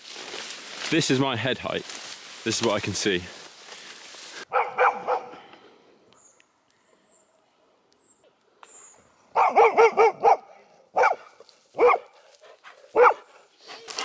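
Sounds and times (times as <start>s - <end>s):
dog barking: 4.5s - 5.4s, 9.3s - 12.2s, 12.9s - 13.5s.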